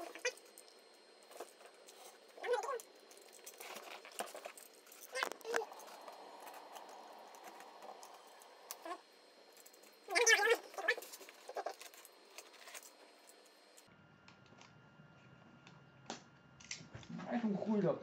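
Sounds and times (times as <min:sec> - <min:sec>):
cardboard rustle: 0:03.2 - 0:08.3.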